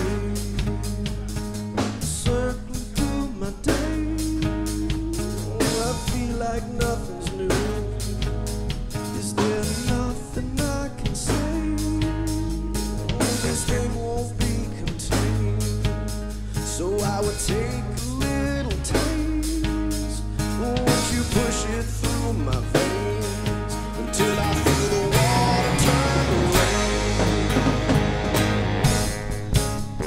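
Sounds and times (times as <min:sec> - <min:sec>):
man singing lead vocal: 0:00.0 - 0:28.0
live rock band playing: 0:00.0 - 0:30.0.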